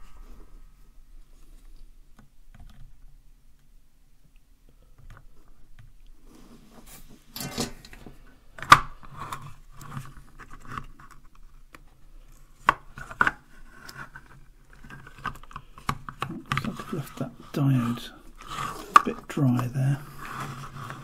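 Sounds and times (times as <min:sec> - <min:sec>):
plastic case rubbing and scraping: 0:09.0 - 0:21.0.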